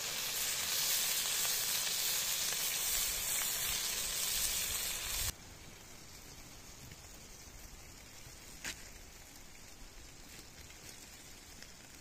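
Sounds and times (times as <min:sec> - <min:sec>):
meat sizzling in a pan: 0:00.0 - 0:05.4
faint hiss: 0:00.0 - 0:12.0.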